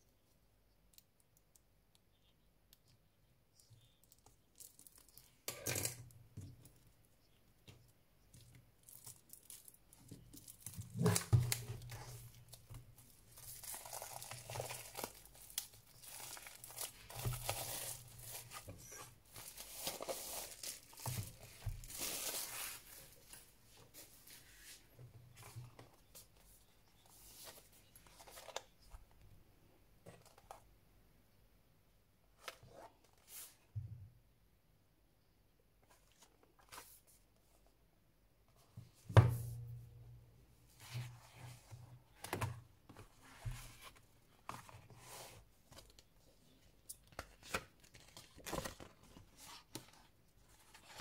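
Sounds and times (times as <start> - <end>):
plastic wrap crinkling and tearing: 13.3 - 23.4.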